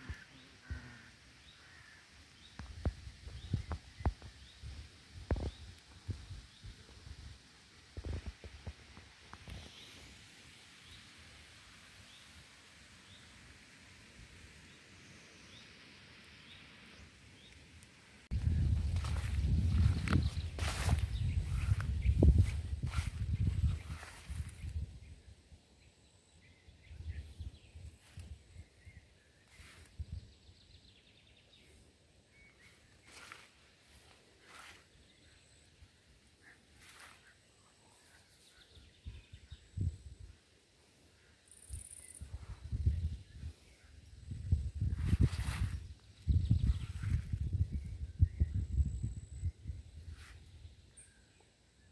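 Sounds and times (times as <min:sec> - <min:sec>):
small bird calling: 0:00.0 - 0:02.6
footsteps through grass: 0:18.3 - 0:24.8, 0:32.6 - 0:35.1, 0:36.4 - 0:37.4, 0:44.8 - 0:47.7.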